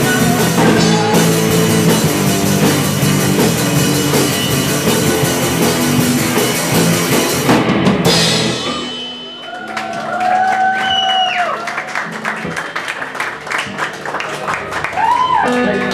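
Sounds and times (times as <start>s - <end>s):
live rock band playing: 0.0s - 13.9s, 14.8s - 15.9s
ringing notes: 8.5s - 10.1s
scattered claps: 9.4s - 15.9s.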